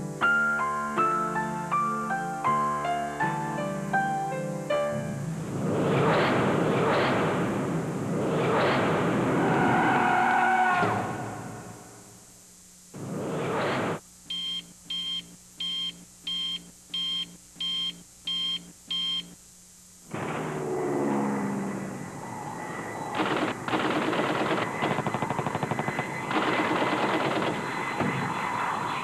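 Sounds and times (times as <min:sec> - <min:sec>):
gunfire sound effects: 0:05.9 - 0:09.3, 0:23.2 - 0:28.7
short electronic beeps: 0:14.3 - 0:19.4
machine-gun fire bursts: 0:23.2 - 0:28.3.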